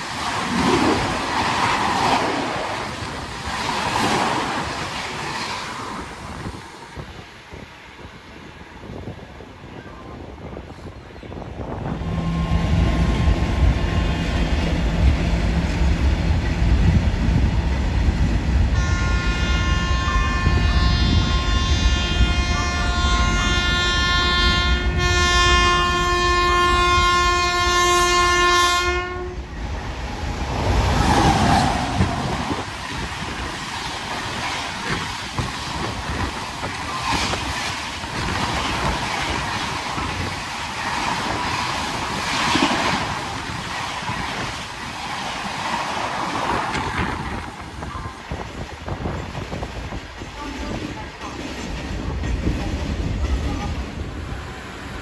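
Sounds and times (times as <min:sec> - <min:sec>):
train rushing past: 0:00.0 - 0:55.0
locomotive horn: 0:18.7 - 0:29.5.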